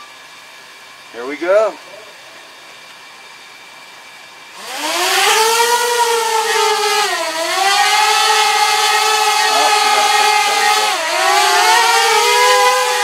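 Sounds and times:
drone motors whining: 4.5 - 13.0
propeller air rush: 4.5 - 13.0.

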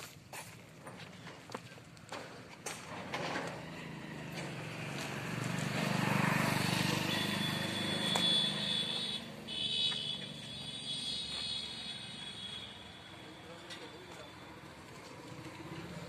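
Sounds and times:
motor vehicle passing: 2.5 - 11.8, 14.5 - 16.0.

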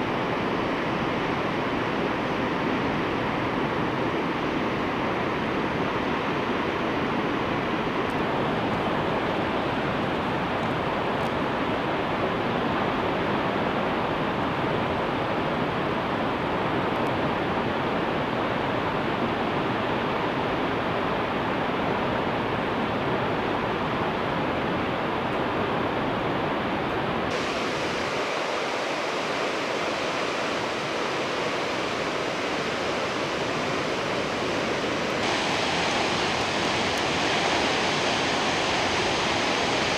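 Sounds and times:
waterfall rushing: 27.3 - 39.9.

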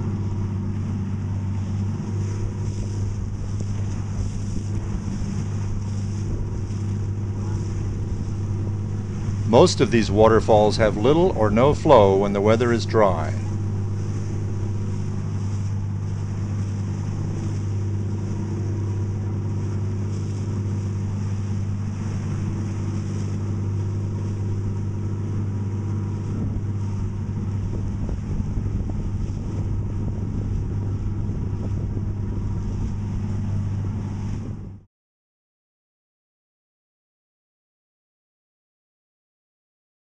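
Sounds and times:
boat engine droning: 0.0 - 34.9.

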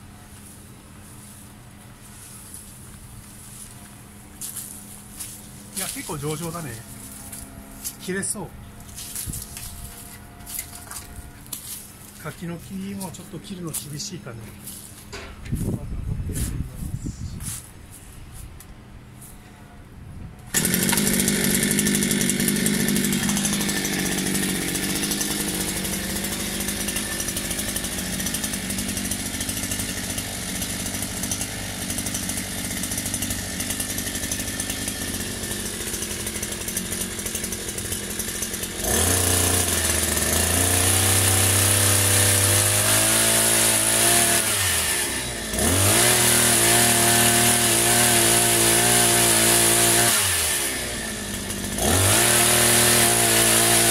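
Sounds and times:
small petrol engine revving: 20.5 - 53.9.

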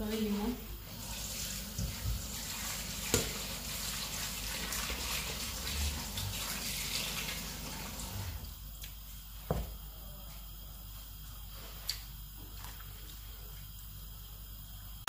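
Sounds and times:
tap water running into steel bowl: 1.0 - 8.5.

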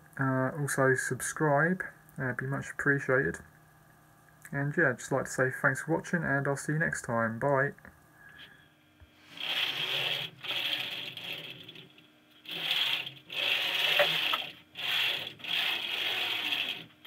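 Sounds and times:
bearings rolling and rattling on rails: 9.4 - 17.0.

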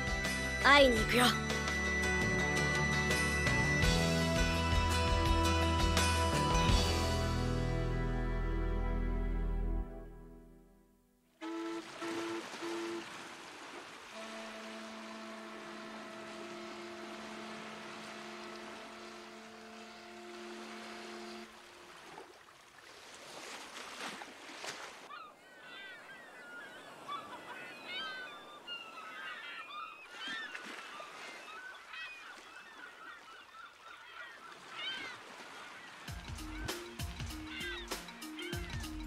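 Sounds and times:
ship's horn low blast: 11.3 - 13.4, 14.0 - 22.2
water noise: 11.3 - 39.0
seagulls crying: 14.2 - 21.5, 25.1 - 39.0.

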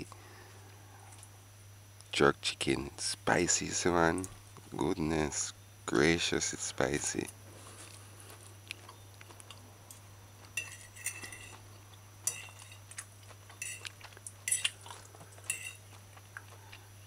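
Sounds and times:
low steady hum: 0.0 - 17.0
fork scraping on plate: 10.6 - 11.6, 12.2 - 13.0, 15.4 - 15.8.

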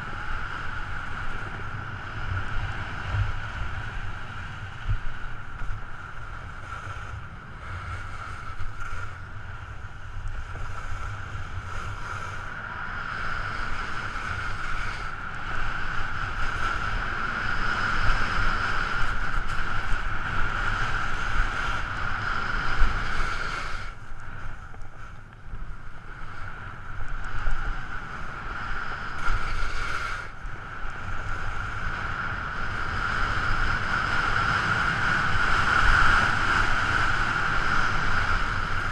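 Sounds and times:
wind on microphone: 0.0 - 38.9
skis scraping on snow: 27.4 - 30.3.

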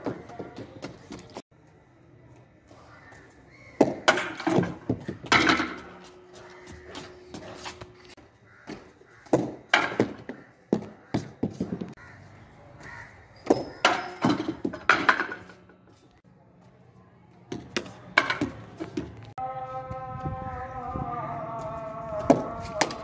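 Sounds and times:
ball knocking on tiled roof: 8.7 - 12.0.

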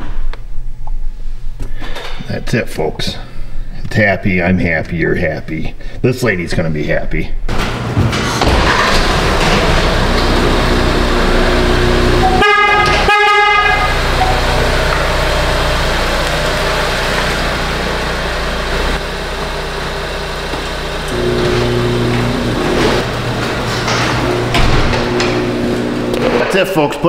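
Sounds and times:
car engine running: 7.8 - 27.0
car horn tooting: 11.3 - 15.6.

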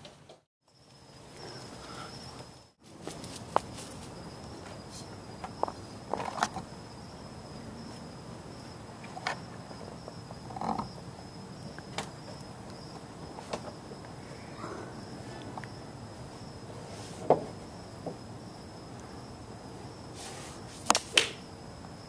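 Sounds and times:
crickets chirping: 0.6 - 22.0.

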